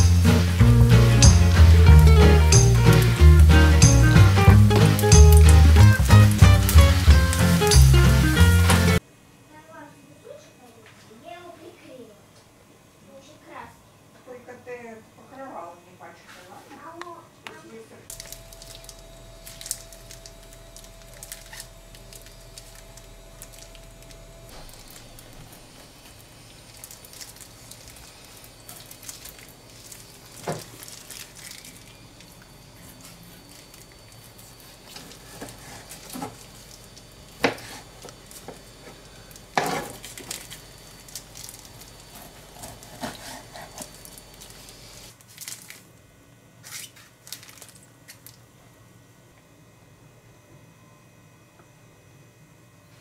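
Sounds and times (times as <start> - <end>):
knife cutting raw liver: 42.0 - 44.2.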